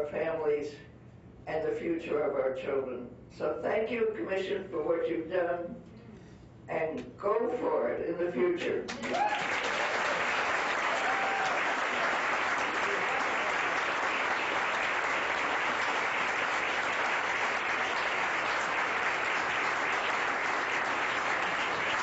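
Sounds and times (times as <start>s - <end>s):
audience applauding: 8.9s - 22.0s.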